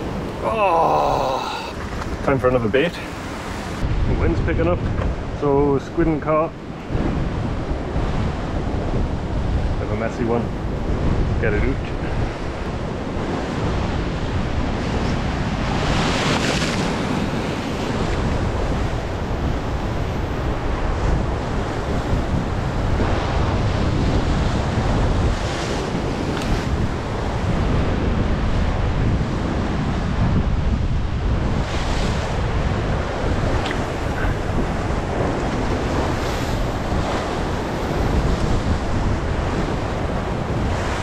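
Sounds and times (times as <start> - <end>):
wind buffeting microphone: 0.0 - 41.0
surf breaking on rocks: 12.7 - 21.0.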